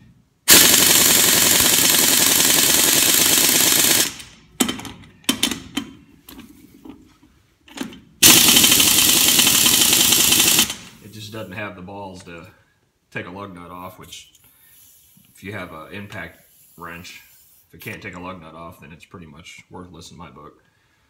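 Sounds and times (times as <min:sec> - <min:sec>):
air impact wrench hammering: 0:00.5 - 0:05.8, 0:08.2 - 0:11.0.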